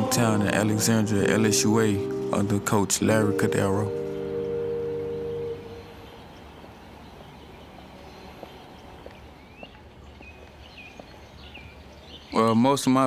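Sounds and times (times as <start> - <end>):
held musical chord: 0.0 - 6.6
bird chirping: 0.0 - 13.0.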